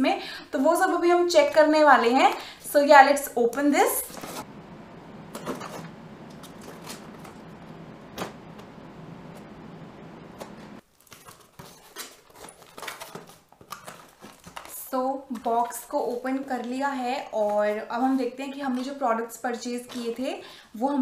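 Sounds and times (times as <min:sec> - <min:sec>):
cardboard flaps scraping and rustling: 0:04.0 - 0:04.5, 0:05.3 - 0:14.8
steady hiss: 0:04.4 - 0:10.8.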